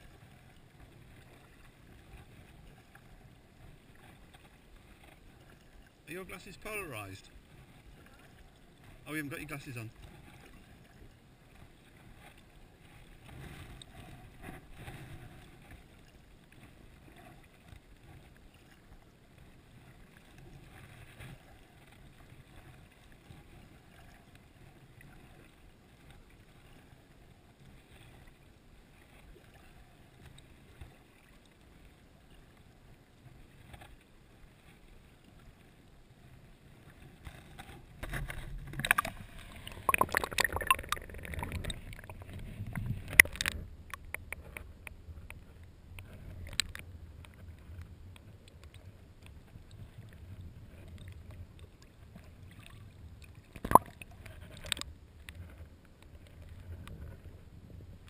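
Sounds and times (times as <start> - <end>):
paddle dipping into water: 36.8 - 57.3
water splashing: 37.1 - 45.0, 49.7 - 55.6.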